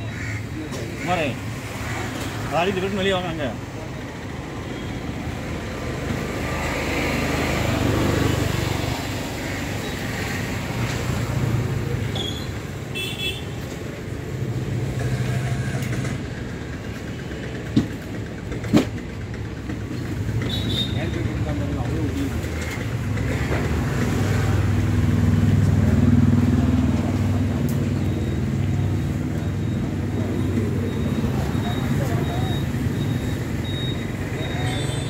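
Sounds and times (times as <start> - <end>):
road traffic rumble: 0.0 - 35.0
vehicle horn toot: 12.2 - 13.6.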